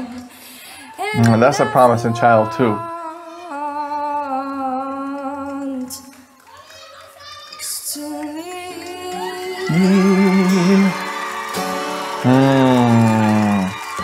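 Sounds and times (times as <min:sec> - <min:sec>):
boy singing softly: 0:01.0 - 0:06.0, 0:07.6 - 0:11.0.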